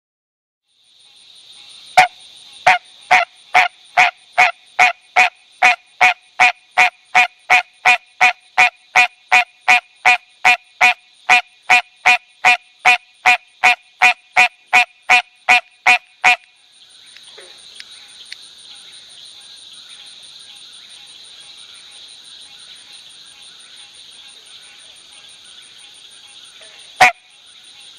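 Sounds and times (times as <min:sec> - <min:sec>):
high background hiss: 0:00.7 - 0:27.9
frog calling: 0:01.6 - 0:18.4, 0:26.2 - 0:27.9.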